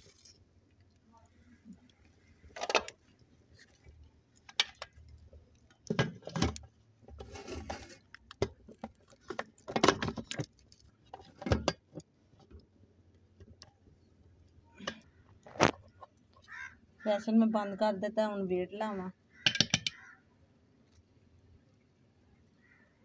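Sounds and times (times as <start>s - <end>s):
metal lid clinks and knocks: 19.4s - 20.0s.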